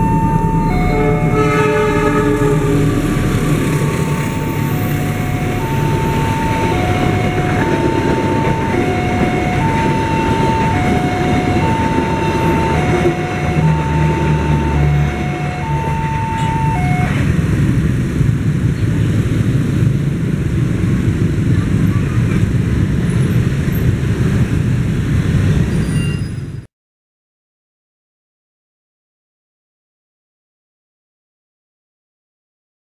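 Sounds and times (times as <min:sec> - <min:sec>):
level crossing two-tone chime: 0:00.0 - 0:12.9
train coaches rumbling past: 0:00.0 - 0:26.7.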